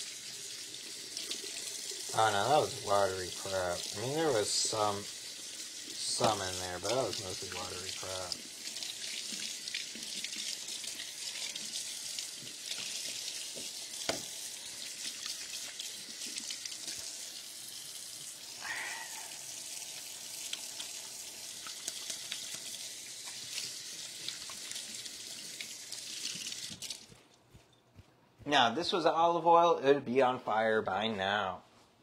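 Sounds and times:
tap water splashing into sink: 6.1s - 14.4s.

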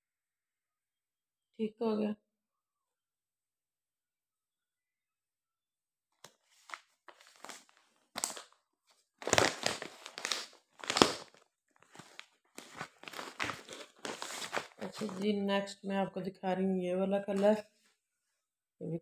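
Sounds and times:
fabric rustling and crinkling: 6.3s - 15.3s.

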